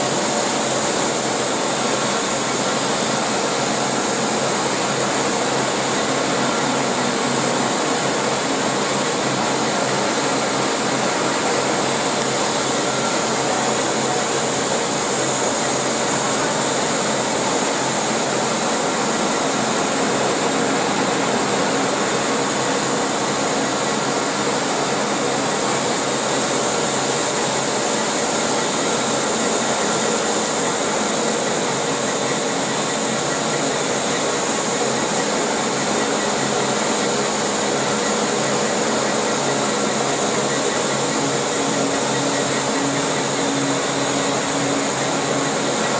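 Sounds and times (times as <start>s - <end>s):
coating machine whirring and hissing: 0.0s - 45.9s.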